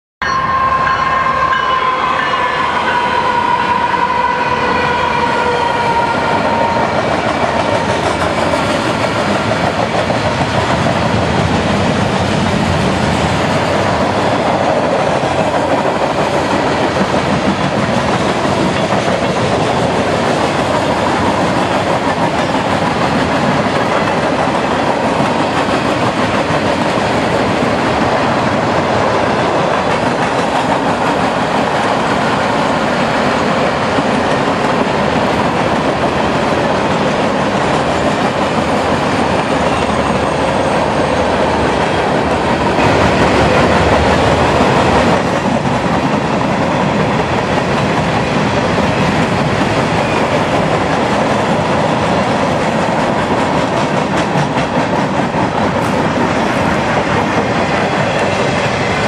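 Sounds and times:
train horn: 0.2s - 7.5s
freight cars rumbling on rails: 1.9s - 59.0s.

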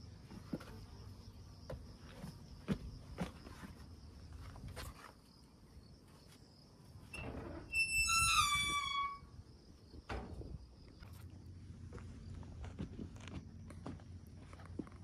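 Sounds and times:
metal door hinges squealing: 7.1s - 9.4s
footsteps: 11.0s - 15.0s.

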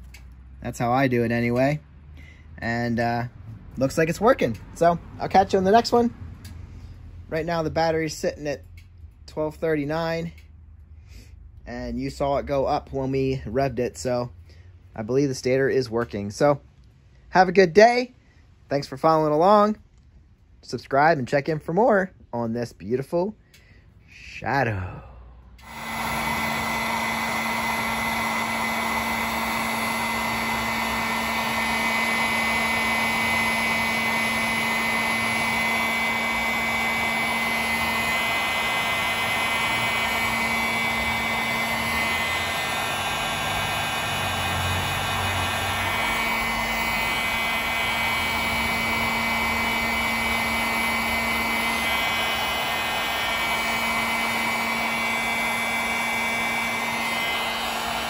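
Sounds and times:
heat gun fan humming and whining: 2.7s - 6.6s, 7.4s - 10.4s, 25.6s - 58.0s.

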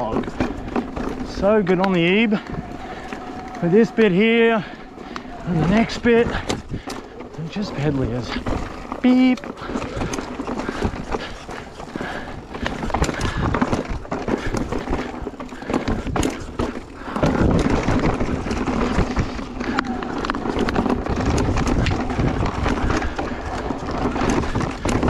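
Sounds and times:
bike rattling clicks and knocks: 0.0s - 25.0s
bike tyres on rocky dirt: 0.0s - 25.0s
wind rumble on microphone: 15.8s - 25.0s.

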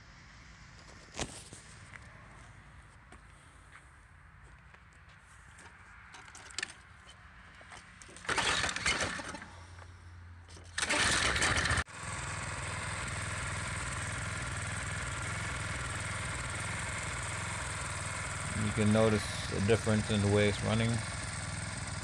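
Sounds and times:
small engine cranking: 8.2s - 9.6s, 10.5s - 11.9s
small engine running steadily: 10.6s - 22.0s.

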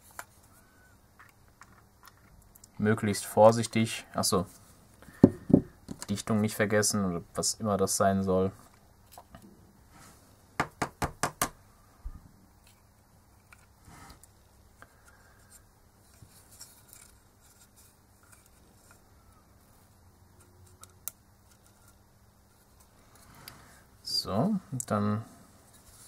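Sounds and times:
soft rubbing and handling noises: 0.0s - 7.0s, 7.9s - 10.5s, 11.9s - 26.0s.

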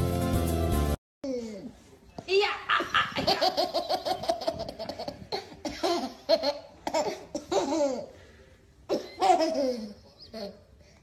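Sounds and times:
baby laughing: 2.7s - 8.1s, 8.9s - 10.7s.

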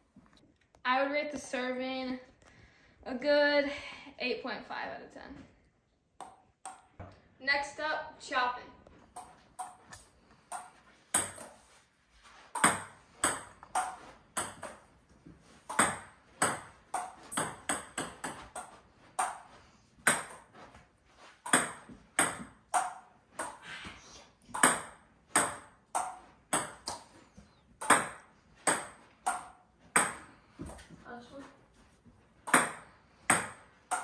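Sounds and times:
table tennis ball clicking: 9.2s - 11.4s.

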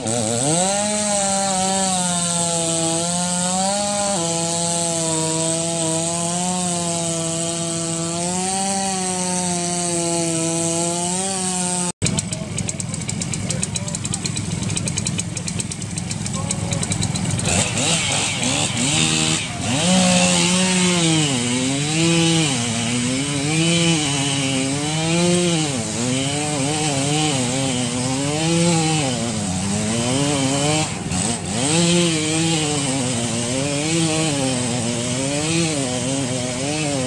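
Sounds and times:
chainsaw cutting ice: 0.0s - 37.0s.

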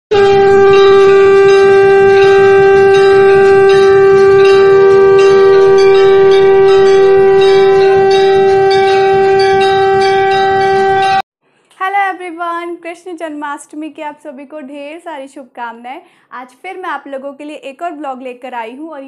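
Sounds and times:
flute melody: 0.1s - 11.2s
steady low drone note: 0.1s - 11.2s.

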